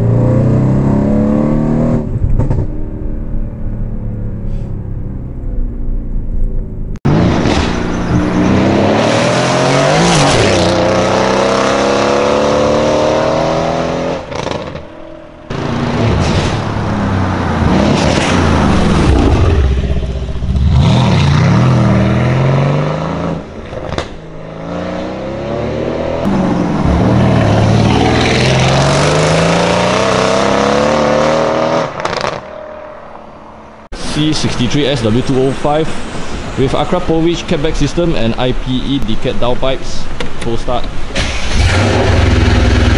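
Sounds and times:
car engine accelerating hard: 0.0 - 14.8, 15.5 - 32.4, 41.2 - 42.9.

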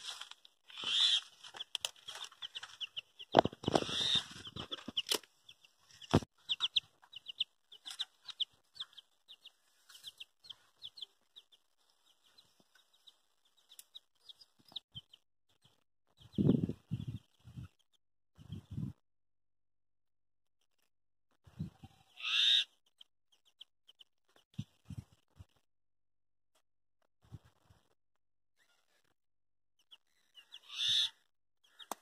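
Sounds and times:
mongoose clucking chirps: 0.7 - 11.5.

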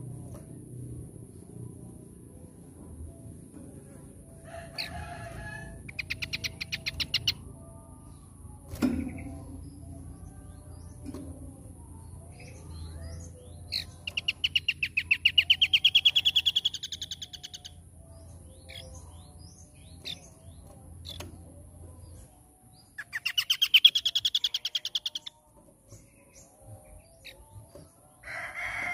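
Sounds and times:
bird singing fast rising trills: 22.8 - 25.3.

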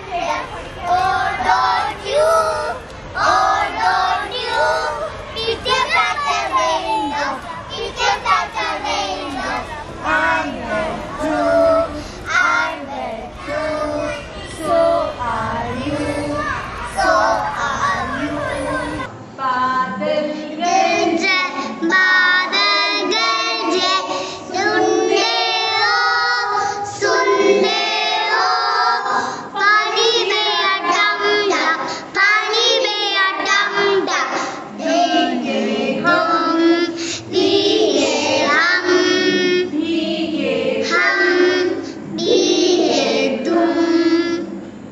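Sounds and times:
children singing: 0.0 - 44.7.

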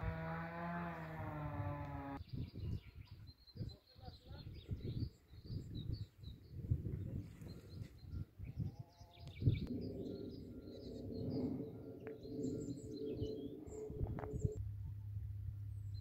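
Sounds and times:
humming drone: 0.0 - 2.2, 8.6 - 16.0
small birds chirping: 1.8 - 14.6.

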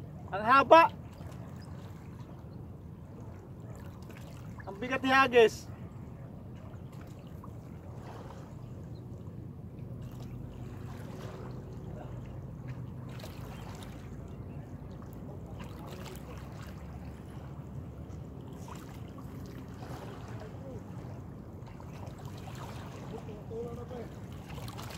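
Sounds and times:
waves lapping against rocks: 6.6 - 9.0, 10.0 - 24.9.

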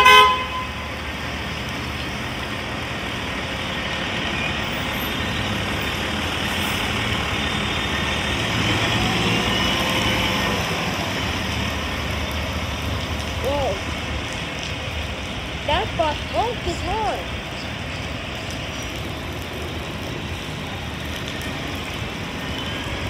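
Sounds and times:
bus diesel engine hum: 0.0 - 13.9
tyres hissing on wet pavement: 0.0 - 23.0.

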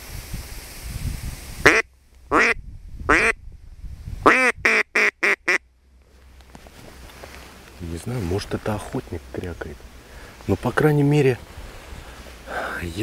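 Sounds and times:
distant duck call quacking: 1.7 - 3.3, 4.3 - 5.6
duck call quacks: 1.7 - 3.4, 4.3 - 5.6.

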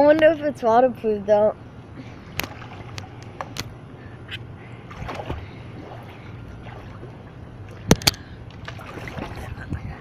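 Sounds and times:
pool water sloshing: 2.0 - 3.8, 4.7 - 9.8.

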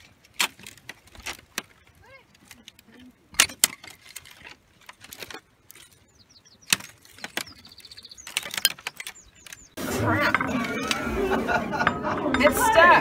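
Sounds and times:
bird chirps: 5.7 - 9.8.

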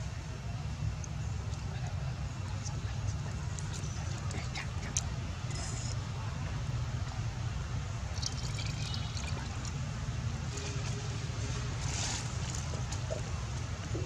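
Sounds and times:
low outdoor rumble: 0.0 - 14.0
faint rustles and ticks: 1.0 - 6.0.

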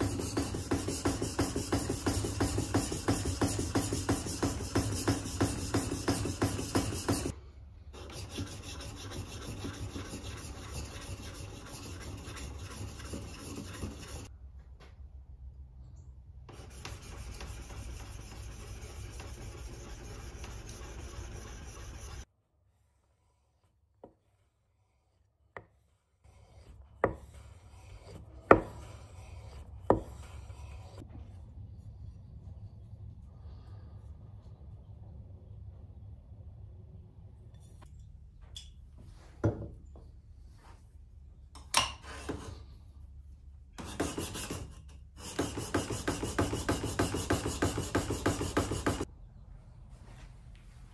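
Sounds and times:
plane iron rasping on abrasive paper: 0.0 - 7.3, 8.0 - 14.3, 16.5 - 22.3, 25.8 - 31.0, 43.9 - 49.1.

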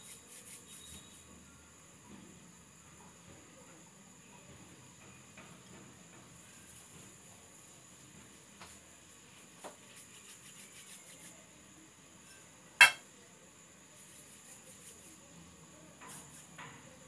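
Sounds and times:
handling dough and plates: 12.2 - 13.1
ceramic dish clinking: 12.8 - 13.0.

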